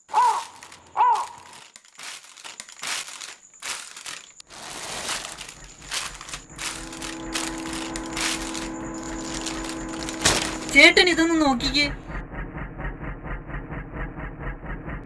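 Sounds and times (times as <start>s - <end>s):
plastic bag crinkling: 0.0s - 11.0s
low multi-tone hum: 5.1s - 13.9s.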